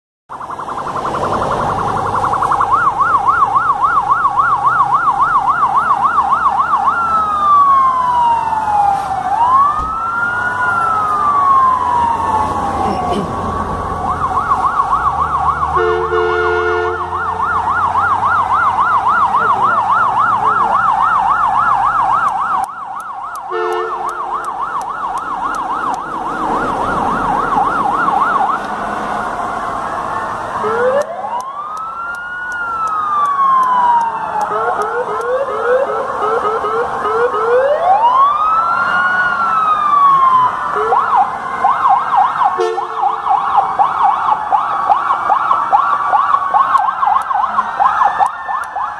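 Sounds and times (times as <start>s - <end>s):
wail siren rising and falling: 0.3s - 48.9s
yelp siren warbling: 0.3s - 48.9s
short horn blasts: 15.8s - 17.1s, 23.5s - 24.1s.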